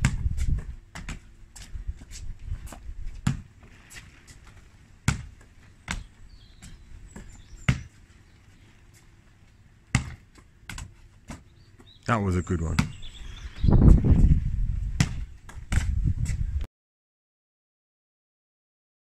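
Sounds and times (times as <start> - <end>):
basketball bouncing on stone: 0.0 - 1.3, 2.7 - 3.5, 5.0 - 8.0, 9.9 - 12.0, 12.7 - 13.0, 15.0 - 16.0.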